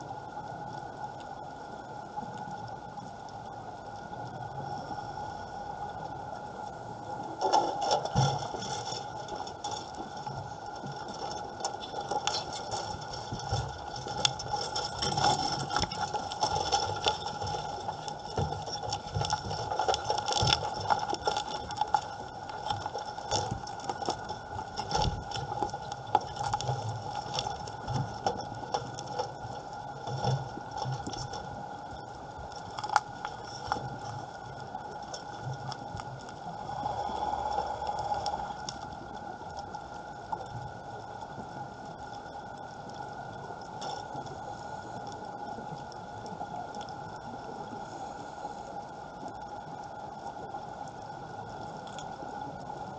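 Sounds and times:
steady underwater whine: 0.0 - 52.9
underwater crackle of clicks: 0.0 - 52.9
low rumbling surges: 36.4 - 39.2.

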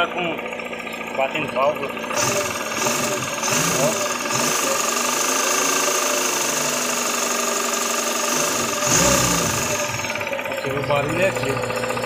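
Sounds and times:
car engine idling with tapping: 0.0 - 4.6, 8.3 - 12.0.

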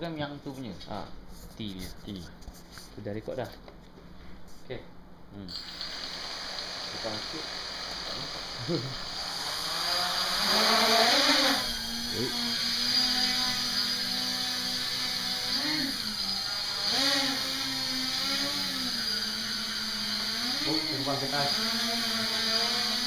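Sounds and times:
quadcopter motors buzzing: 5.5 - 23.0.

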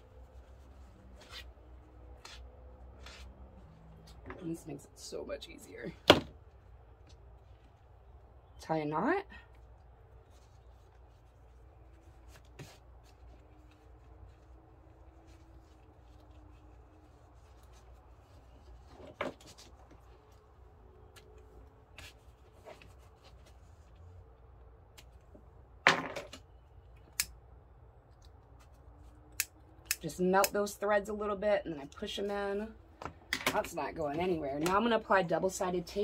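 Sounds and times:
vinyl rustle: 0.0 - 8.6, 9.6 - 25.5.

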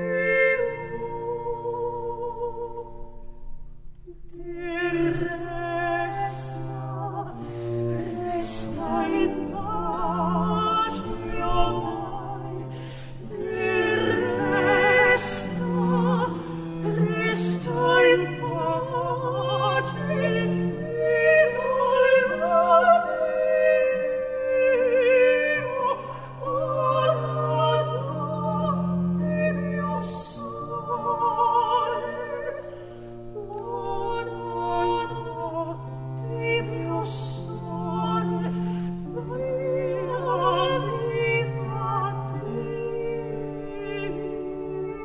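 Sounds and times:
low bowed strings: 0.0 - 45.0
operatic singing: 4.3 - 45.0
singer breathing: 12.7 - 13.2, 32.6 - 33.3.

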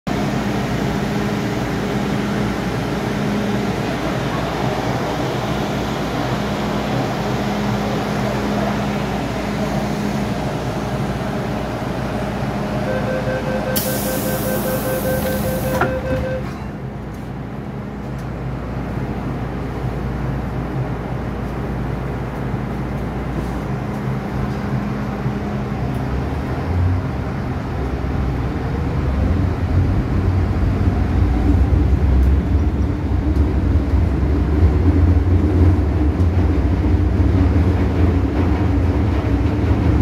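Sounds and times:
train ventilation hum: 0.1 - 40.0
door warning beeps: 12.9 - 16.7
train doors shutting with knock: 13.7 - 17.3
air hiss: 13.8 - 15.7.

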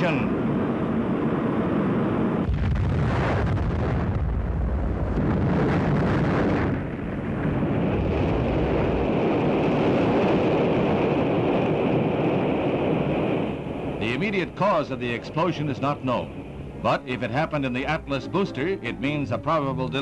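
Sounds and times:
long steady rumble: 0.0 - 20.0
rocket explosion blast: 2.4 - 13.7.

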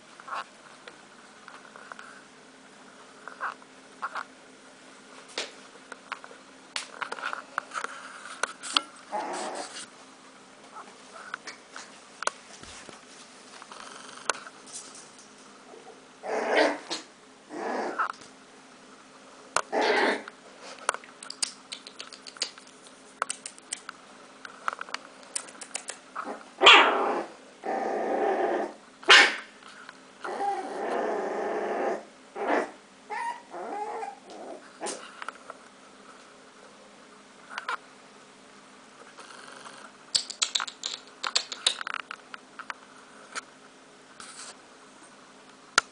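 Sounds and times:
puppies growling: 9.1 - 9.9, 15.7 - 18.2, 19.6 - 20.3, 25.4 - 28.8, 30.2 - 35.1
puppies yipping and barking: 33.1 - 34.3.

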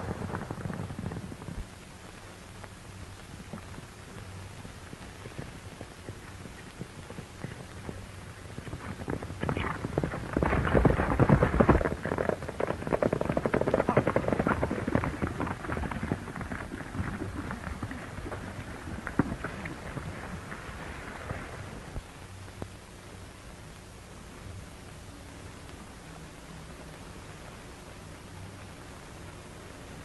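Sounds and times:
horses galloping over dirt: 0.0 - 23.8.

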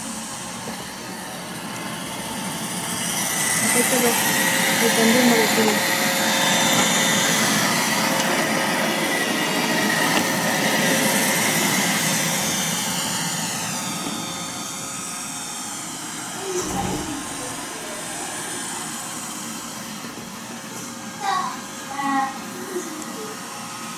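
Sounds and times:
robot vacuum whirring hum: 0.0 - 23.9
low thump: 16.6 - 18.2.

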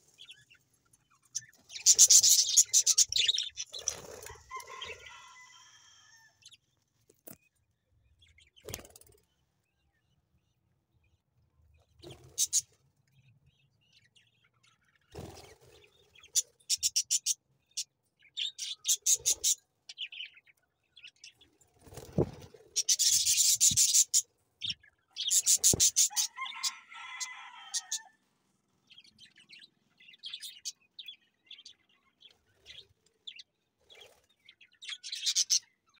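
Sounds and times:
budgerigars chirping: 1.8 - 5.1, 22.8 - 28.0.

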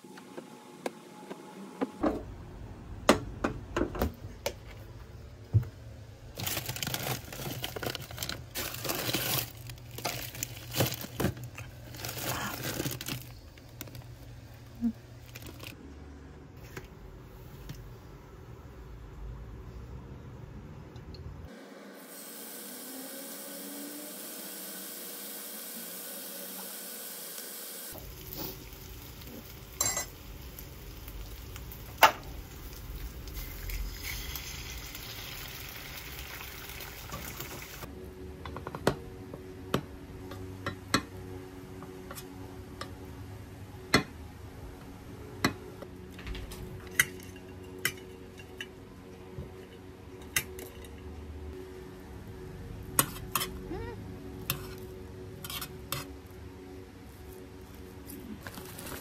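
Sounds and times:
bacon sizzling in a frying pan: 24.2 - 37.8.

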